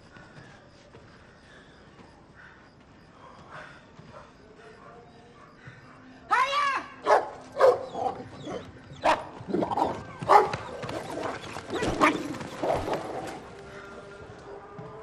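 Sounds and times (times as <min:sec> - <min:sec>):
dogs barking and snarling: 0:07.0 - 0:13.8.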